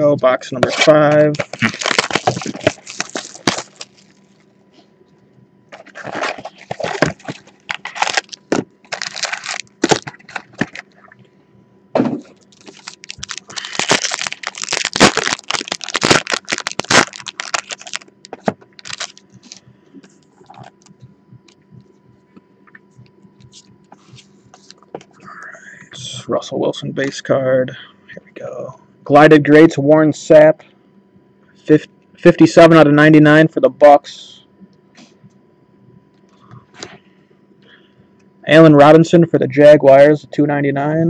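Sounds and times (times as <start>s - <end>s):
foil packs crinkling and tearing: 0.6s - 4.3s, 5.8s - 10.9s, 12.4s - 19.6s.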